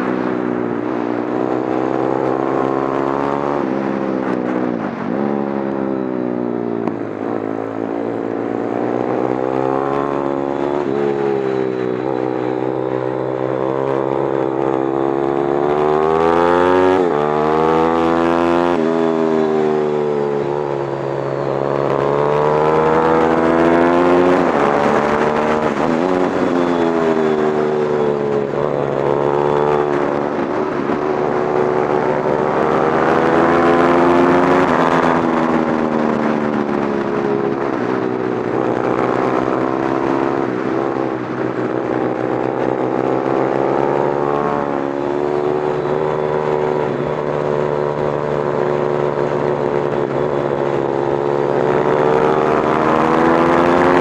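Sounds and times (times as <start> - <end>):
motorcycle engine revving: 0.0 - 54.0.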